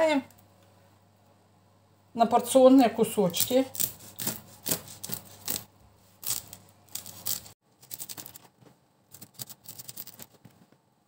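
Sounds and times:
wafer crackling under blade: 0:03.3 - 0:10.5
knife crunching through wafer: 0:03.4 - 0:08.4.

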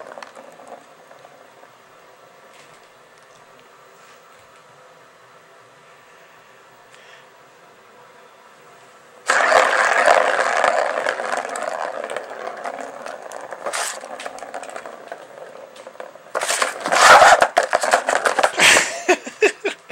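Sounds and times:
plastic ball whirring around track: 0:00.0 - 0:01.8, 0:09.3 - 0:19.5
ball knocking and rattling: 0:00.0 - 0:01.9, 0:09.3 - 0:19.2.

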